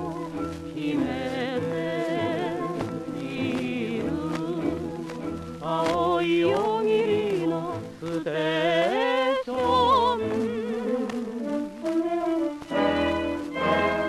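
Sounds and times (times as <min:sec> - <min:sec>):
record surface crackle: 0:00.0 - 0:14.0
orchestra playing: 0:10.0 - 0:14.0.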